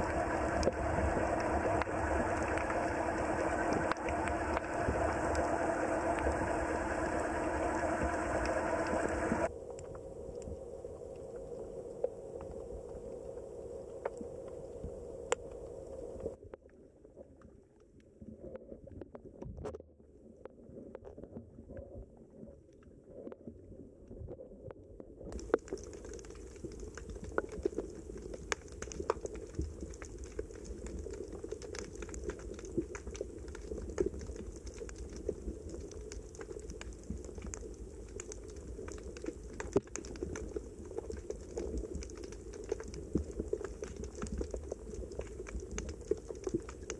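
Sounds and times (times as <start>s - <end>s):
underwater clicks and snaps: 0.0s - 10.0s, 25.3s - 46.9s
low underwater rumble: 0.0s - 46.9s.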